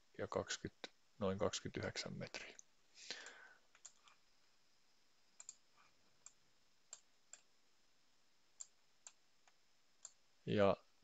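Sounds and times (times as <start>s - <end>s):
computer mouse buttons clicking: 3.7s - 4.2s, 5.4s - 5.6s.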